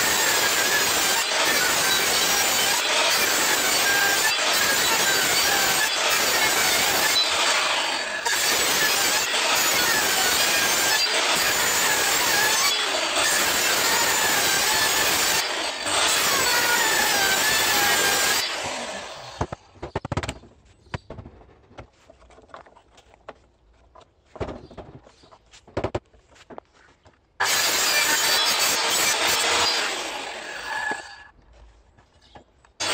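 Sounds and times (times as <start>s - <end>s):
circular saw cutting wood: 0.0s - 19.6s, 27.4s - 31.4s
knocks and clunks: 19.4s - 27.2s.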